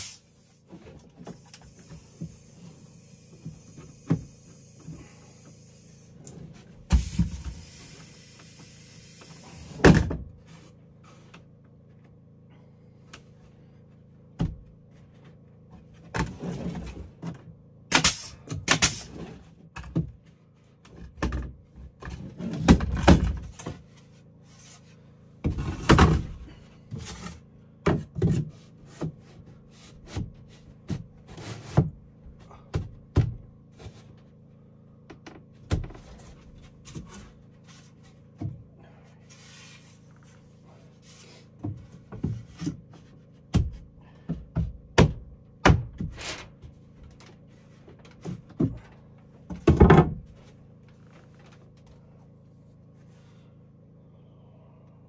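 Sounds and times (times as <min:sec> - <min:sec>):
wooden boards knocking: 0:49.5 - 0:50.3.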